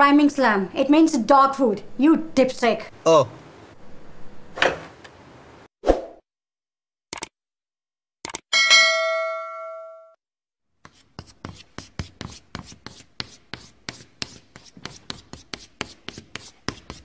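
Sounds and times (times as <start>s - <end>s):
chime ringing: 8.6s - 10.2s
marker pen scratching: 10.8s - 17.0s.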